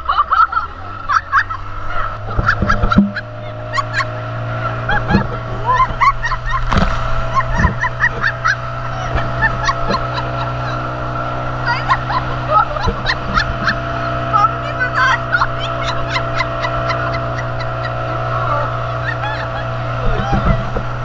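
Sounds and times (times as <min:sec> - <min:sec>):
outboard engine running: 0:00.0 - 0:21.0
rushing water: 0:00.0 - 0:21.0
inflatable tube knocking: 0:02.3 - 0:03.2, 0:06.6 - 0:08.4, 0:20.0 - 0:21.0.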